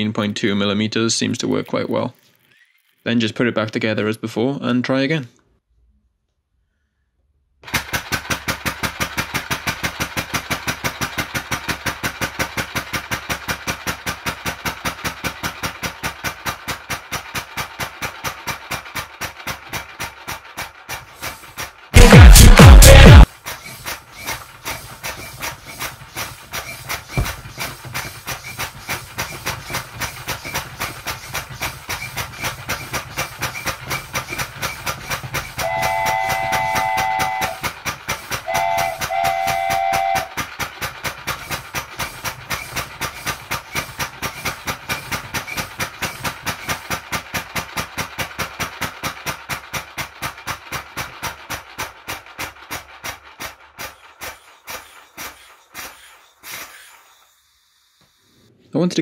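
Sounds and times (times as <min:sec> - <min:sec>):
air engine valve puffing: 0:20.5 - 0:21.8, 0:22.8 - 0:49.8, 0:51.0 - 0:58.5
steam train whistle: 0:35.5 - 0:40.5.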